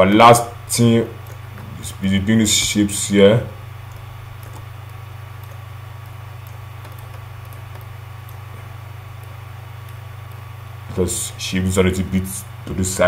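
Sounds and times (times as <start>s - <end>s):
low electrical hum: 0.0s - 13.0s
faint clicks: 1.2s - 1.7s, 3.8s - 10.5s.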